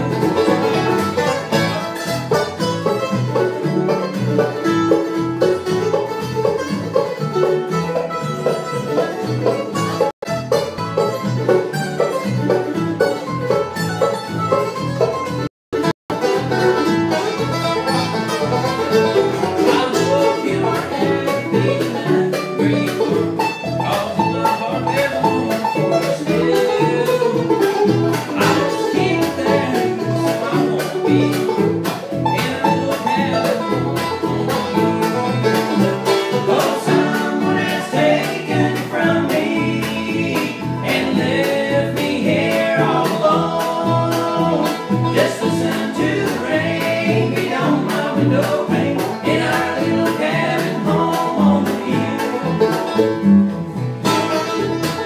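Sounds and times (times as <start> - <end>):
banjo rolls: 0.0 - 55.0
bluegrass band playing: 0.0 - 55.0.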